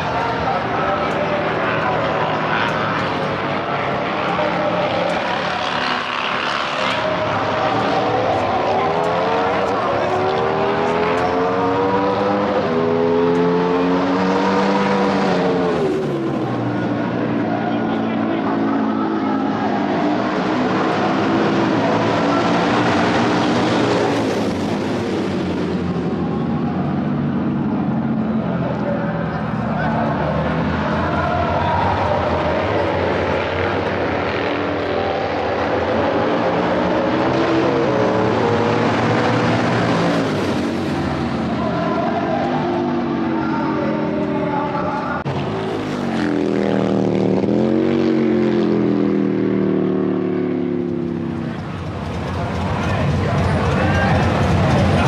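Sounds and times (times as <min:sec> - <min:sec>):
motorcycle engine revving: 0:00.0 - 0:17.4
motorcycle engines droning: 0:00.0 - 0:55.0.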